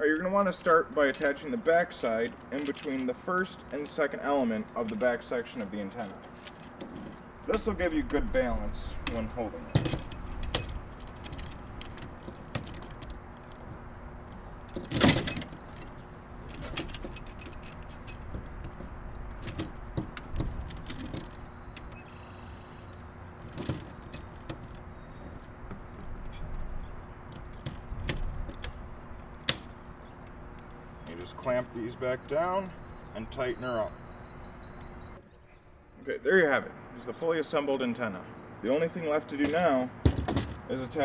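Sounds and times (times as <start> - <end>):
metal bracket clinking and rattling: 9.1 - 13.7, 14.6 - 21.6.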